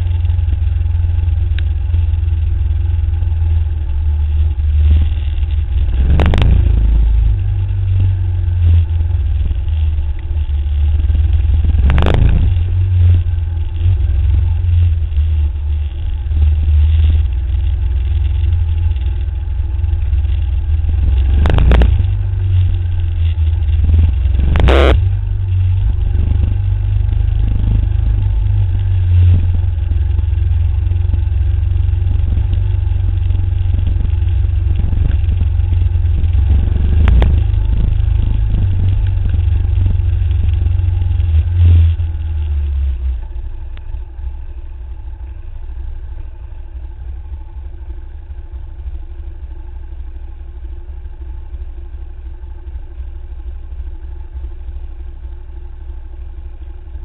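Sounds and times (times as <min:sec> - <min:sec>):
motorcycle engine running: 0:00.0 - 0:57.0
wind rumble on microphone: 0:03.0 - 0:43.9.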